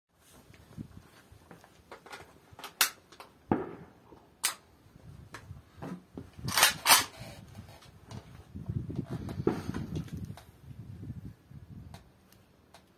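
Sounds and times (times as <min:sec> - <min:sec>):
rifle metallic clacks: 0:04.4 - 0:04.6, 0:06.5 - 0:07.2.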